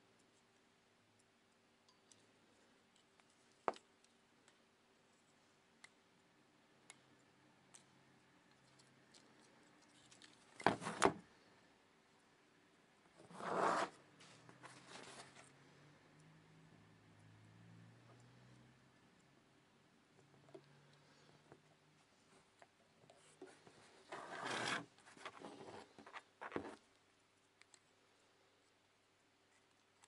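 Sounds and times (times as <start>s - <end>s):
plastic handling sounds: 13.2s - 15.5s
soft rustling: 13.2s - 15.6s.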